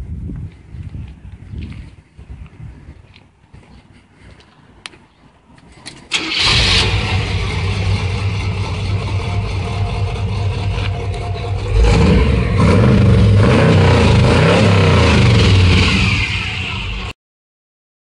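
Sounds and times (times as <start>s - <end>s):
truck engine running and revving: 6.4s - 17.1s.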